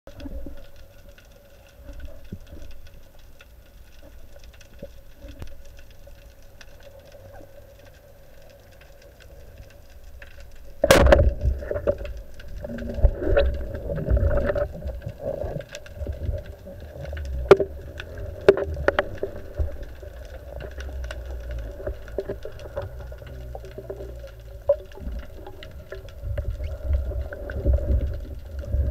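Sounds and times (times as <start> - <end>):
faint steady hum: 0.1 - 28.9
underwater rumble: 0.1 - 28.9
loud underwater knocks: 10.8 - 12.0.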